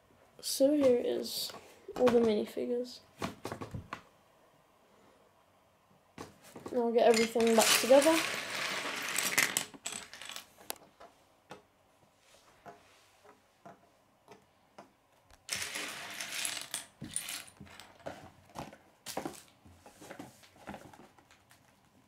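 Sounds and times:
plastic pieces clattering on wood: 0:07.0 - 0:10.9, 0:15.5 - 0:19.5.

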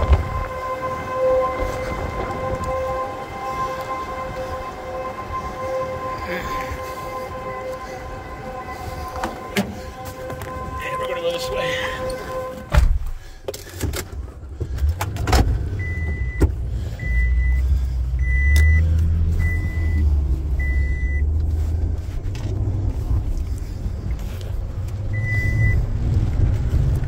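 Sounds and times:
dashboard warning chime: 0:08.5 - 0:12.7, 0:15.8 - 0:17.6, 0:20.6 - 0:21.2, 0:25.2 - 0:25.8.

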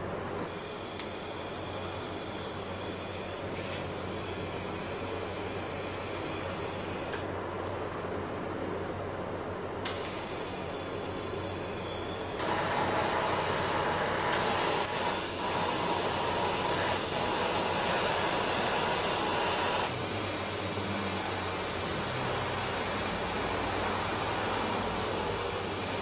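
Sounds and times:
faint electrical hum: 0:00.0 - 0:26.0
welding arc hissing: 0:09.9 - 0:20.0.

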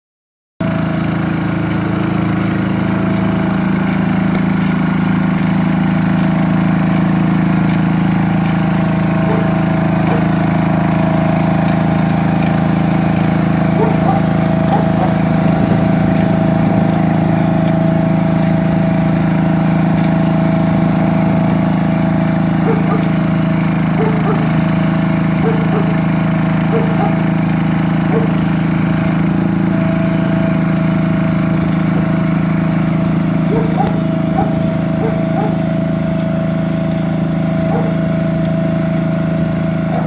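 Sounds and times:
machine engine running: 0:00.6 - 0:40.0
rotating tine head working: 0:00.6 - 0:40.0.

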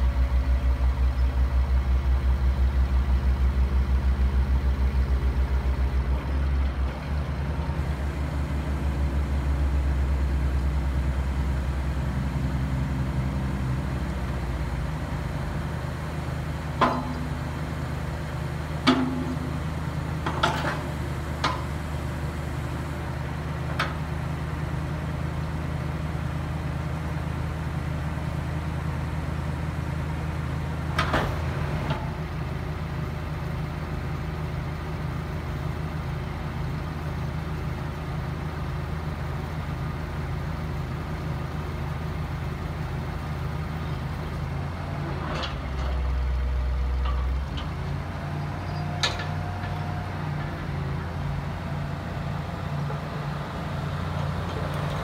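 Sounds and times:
truck engine running: 0:00.0 - 0:55.0
sharp metallic clanks: 0:16.8 - 0:17.4, 0:18.8 - 0:19.6.

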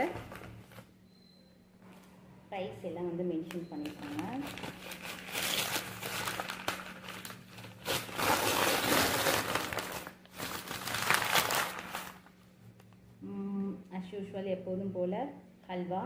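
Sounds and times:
paper bag crinkling: 0:03.8 - 0:12.4.

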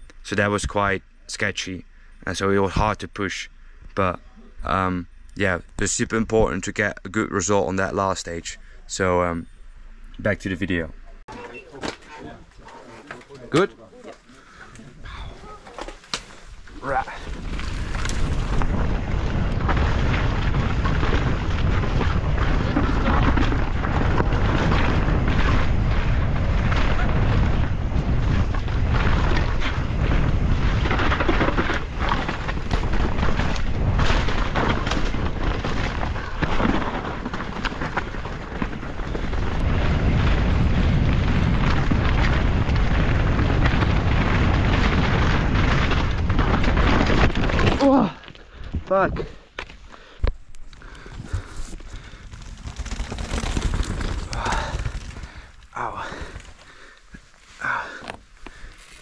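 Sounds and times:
tyres rumbling over rocks: 0:11.2 - 0:59.0
wind rushing over microphone: 0:16.5 - 0:47.8.

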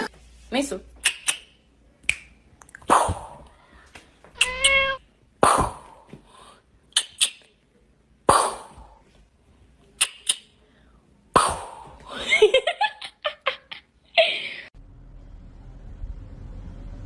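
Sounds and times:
kitten meowing: 0:04.4 - 0:05.0
sharp pops: 0:05.4 - 0:06.0, 0:08.3 - 0:08.9.

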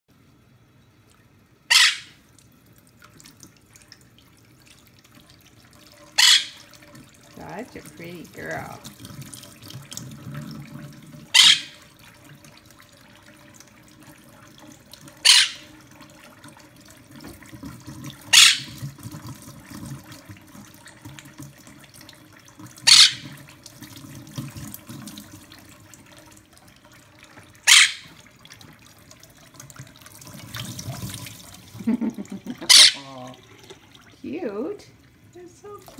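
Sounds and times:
parrot sharp calls: 0:01.7 - 0:02.2, 0:06.2 - 0:06.6, 0:11.3 - 0:11.8, 0:15.2 - 0:15.7, 0:18.3 - 0:18.8, 0:22.8 - 0:23.3, 0:27.6 - 0:28.2, 0:32.6 - 0:33.1
faucet running into water: 0:01.7 - 0:35.9.

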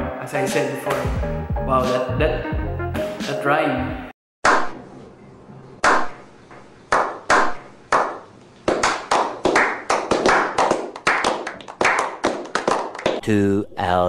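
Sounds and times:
people clapping: 0:06.9 - 0:13.2.

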